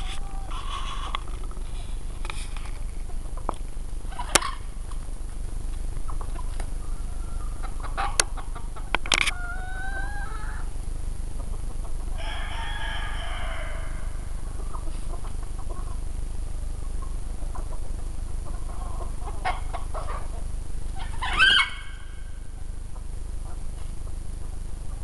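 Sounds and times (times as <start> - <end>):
chickens calling: 0.0 - 5.0, 5.9 - 25.0
rooster crowing: 12.2 - 14.3.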